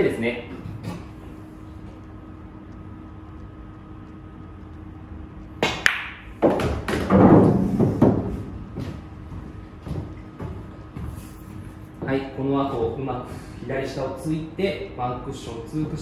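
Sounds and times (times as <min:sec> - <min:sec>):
cue striking ball click: 0:05.6 - 0:07.7
pool balls colliding: 0:05.6 - 0:08.7
ball bouncing off cushions: 0:05.6 - 0:10.6.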